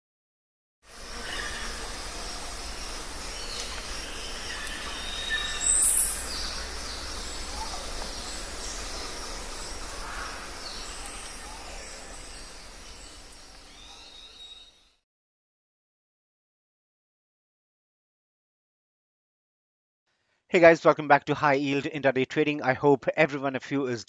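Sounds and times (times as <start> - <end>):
steady forest background rush: 0.9 - 14.7
loud high bird call: 1.1 - 14.8
birds chirping and whistling: 2.8 - 14.8.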